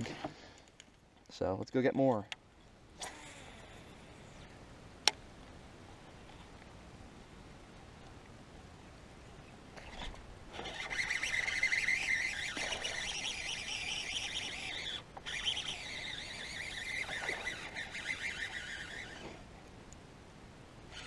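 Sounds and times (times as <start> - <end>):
fishing reel gear whir: 3.0 - 4.6, 9.8 - 19.5.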